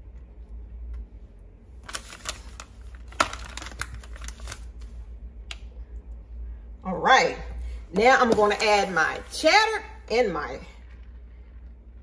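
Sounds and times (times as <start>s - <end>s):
low steady hum: 0.0s - 12.0s
cheese packaging crinkles and clicks: 1.8s - 5.7s.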